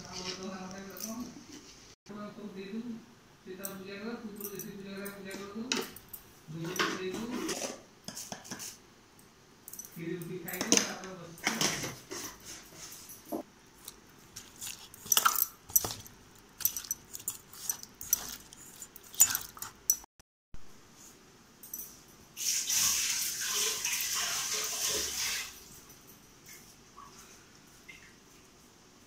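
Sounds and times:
fish squishing and rubbing: 0:13.8 - 0:19.9.

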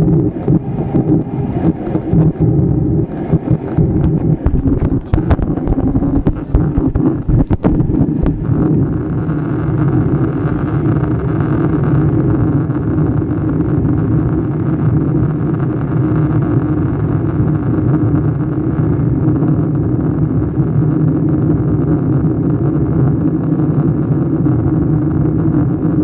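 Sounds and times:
jet airliner cabin roar: 0:00.0 - 0:18.4.

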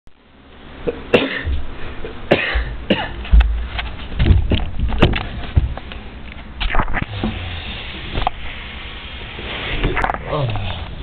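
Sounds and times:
person coughing hard: 0:00.9 - 0:01.6, 0:02.3 - 0:03.2.

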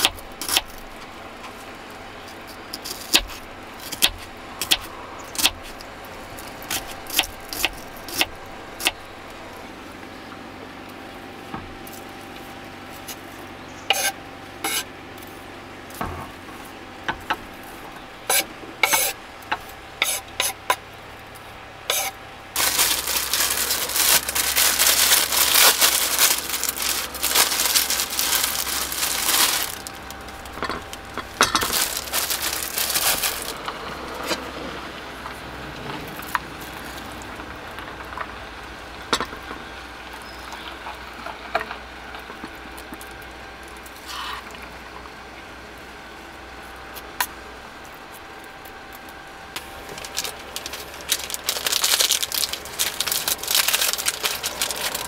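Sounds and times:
plastic bag crinkling: 0:22.6 - 0:33.7, 0:49.6 - 0:55.0.

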